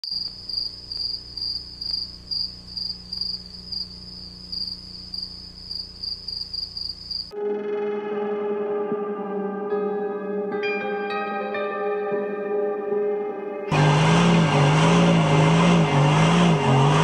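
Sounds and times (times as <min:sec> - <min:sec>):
crickets chirping: 0:00.0 - 0:07.4
music: 0:07.4 - 0:17.0.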